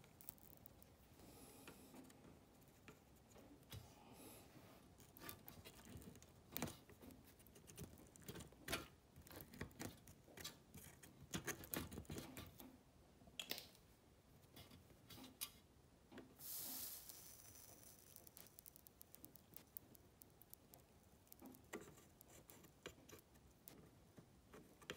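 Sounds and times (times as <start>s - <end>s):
short hiss: 16.4s - 18.1s.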